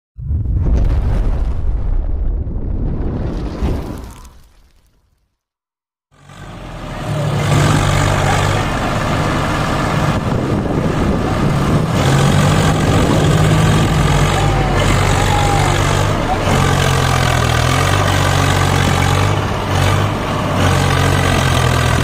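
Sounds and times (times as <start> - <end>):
diesel tractor engine running: 6.1 - 22.0.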